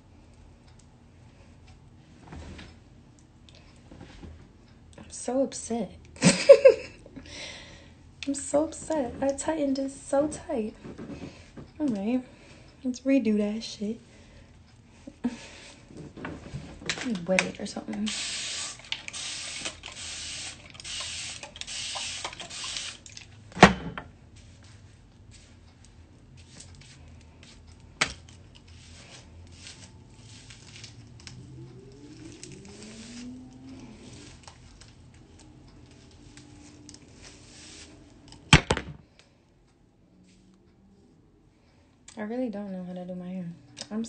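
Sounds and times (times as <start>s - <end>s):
spray bottle squirts: 18.1s - 23.1s
hairbrush scratching through hair: 28.7s - 31.1s, 32.1s - 34.8s, 36.6s - 38.1s.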